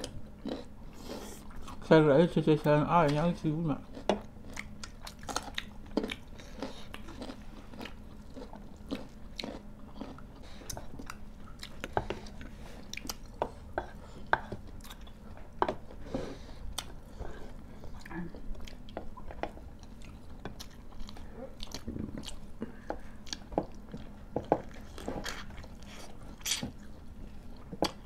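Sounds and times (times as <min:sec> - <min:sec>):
people chewing and crunching food: 0:00.0 - 0:02.4, 0:03.0 - 0:28.0.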